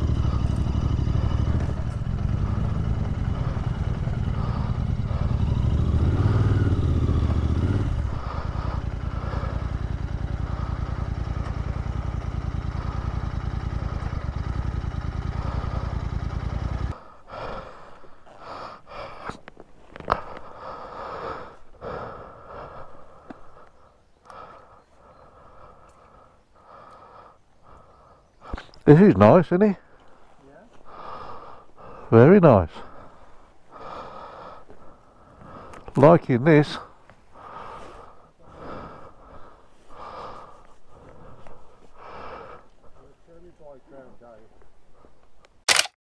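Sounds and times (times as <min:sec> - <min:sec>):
person breathing heavily: 0:00.0 - 0:28.9, 0:29.8 - 0:45.6
sharp click: 0:45.7 - 0:46.0.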